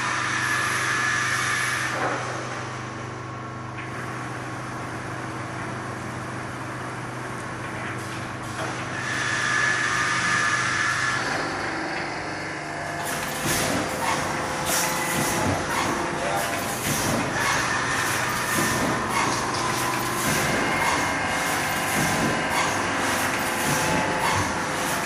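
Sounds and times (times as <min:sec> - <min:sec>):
high machine whine: 0:00.0 - 0:25.0
low machine hum: 0:00.0 - 0:25.0
machine clatter: 0:12.9 - 0:25.0
machine hissing: 0:13.0 - 0:25.0.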